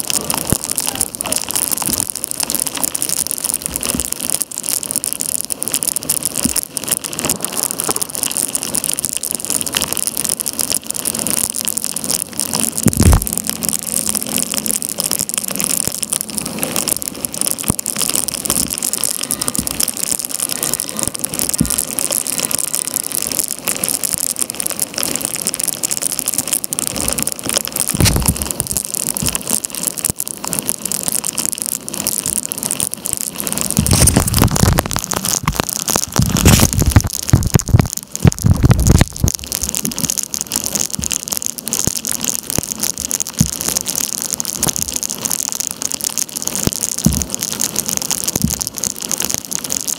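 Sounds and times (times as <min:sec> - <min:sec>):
raindrops ticking on camera: 0:00.0 - 0:49.9
torrential rain on water: 0:00.0 - 0:49.9
low rumbles: 0:10.2 - 0:23.2.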